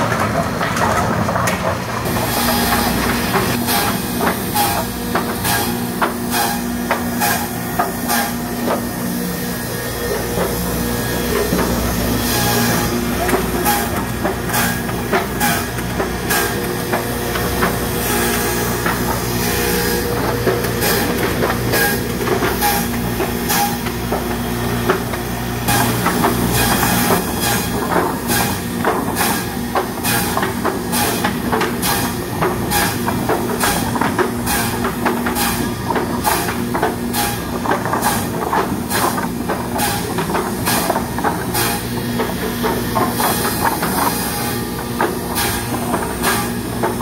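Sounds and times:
machine hum: 0.0 - 47.0
wooden boards knocking and clattering: 10.1 - 47.0.

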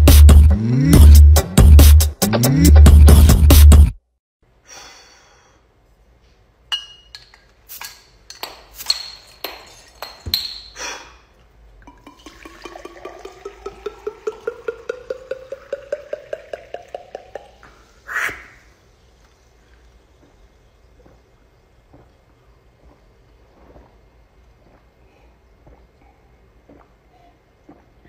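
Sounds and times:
glass clinking: 6.7 - 10.8, 11.9 - 17.6
water pouring into glass: 11.8 - 17.9.

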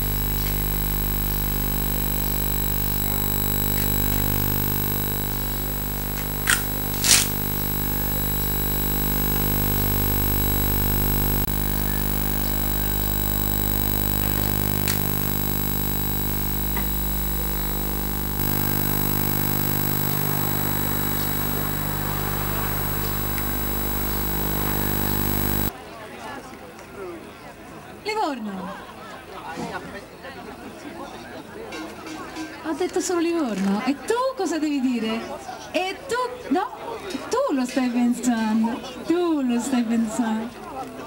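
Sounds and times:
drone of held tones: 0.0 - 25.7
sharp clicks: 0.0 - 25.7.

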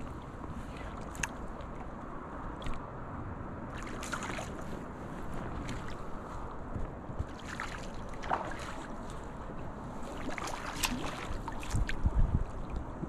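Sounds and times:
moving water: 0.0 - 13.0
wind on microphone: 0.0 - 13.0
fish splashing in water: 3.7 - 4.6, 7.2 - 9.1, 10.1 - 12.1.

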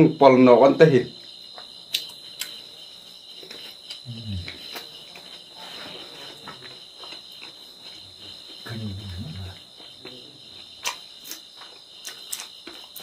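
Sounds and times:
crickets chirping: 0.0 - 13.0
man chewing and smacking: 1.4 - 13.0
man humming low: 4.1 - 4.6.

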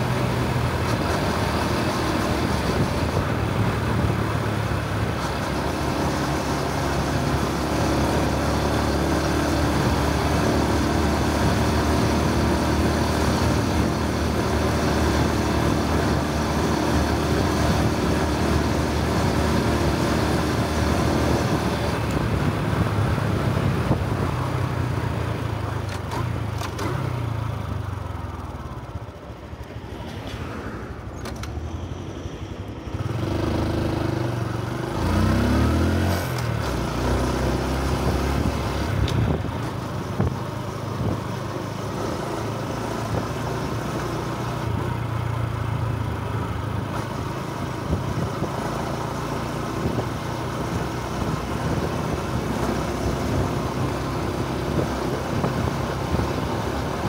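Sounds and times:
wind noise on microphone: 16.8 - 24.7, 36.5 - 41.4, 47.8 - 49.0, 49.6 - 57.0.

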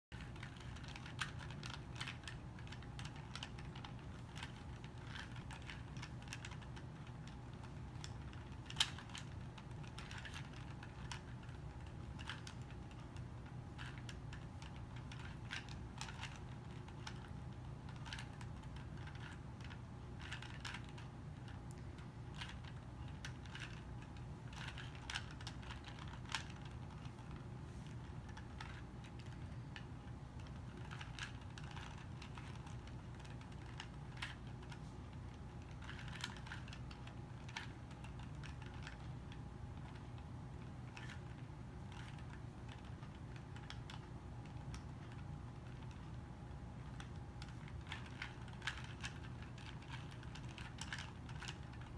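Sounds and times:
faint low hum: 0.1 - 51.9
puzzle cube layers clicking: 0.2 - 40.2.

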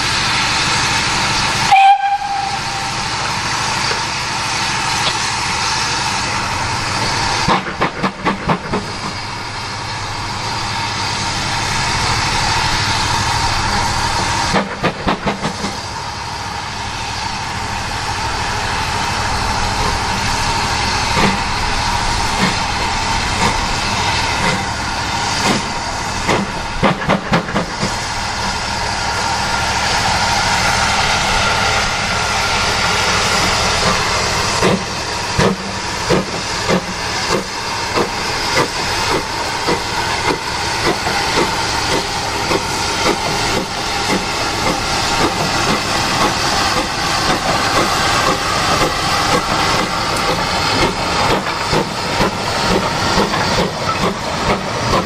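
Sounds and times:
steam hissing: 0.0 - 55.0
locomotive sharp clanks: 4.8 - 9.3, 14.2 - 15.9, 21.1 - 21.5, 22.3 - 28.6, 33.1 - 55.0.

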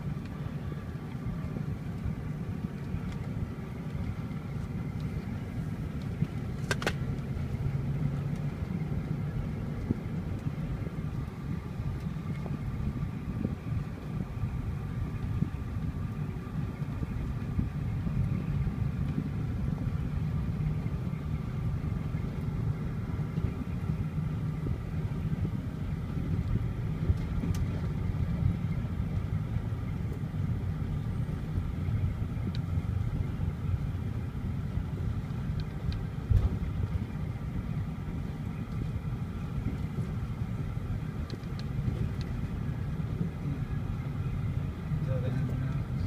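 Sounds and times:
engine and road rumble: 0.0 - 46.0.

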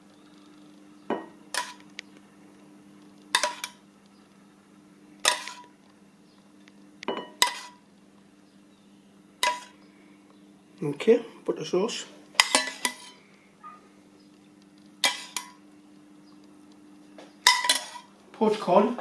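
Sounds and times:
low steady hum: 0.0 - 19.0
metal spoon clinking on bowls: 3.4 - 3.8, 9.4 - 9.8, 12.4 - 13.2, 17.4 - 18.1.

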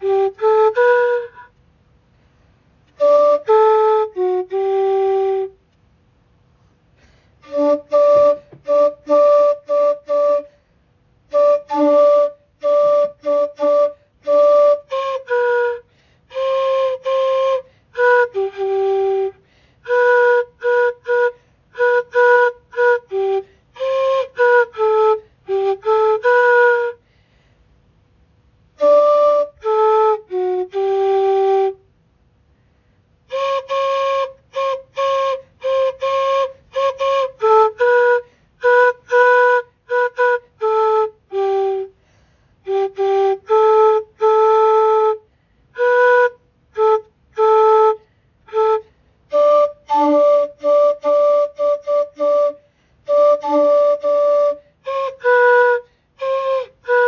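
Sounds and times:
flute-like woodwind melody: 0.0 - 1.6, 2.9 - 5.7, 7.4 - 27.0, 28.7 - 31.9, 33.2 - 57.0.

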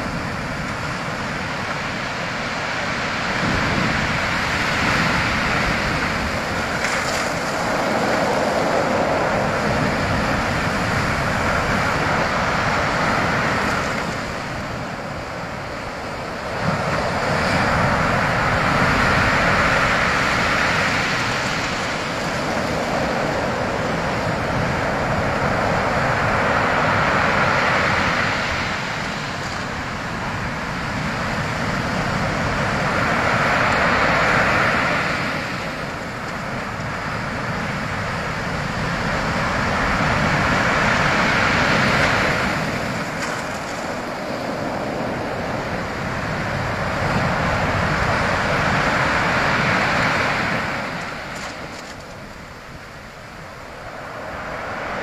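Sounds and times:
waves breaking on shingle: 3.7 - 11.3, 40.4 - 45.2.

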